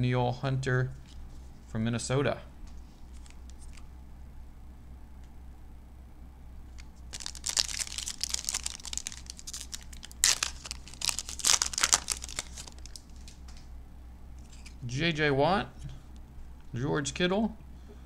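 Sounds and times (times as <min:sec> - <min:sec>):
foil wrapper crinkling and tearing: 0:07.1 - 0:13.5.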